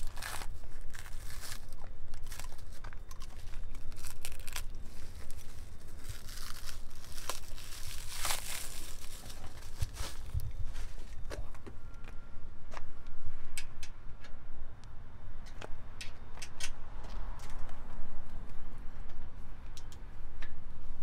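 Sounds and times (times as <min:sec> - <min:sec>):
packing wrap tearing and crinkling: 0:00.0 - 0:11.0.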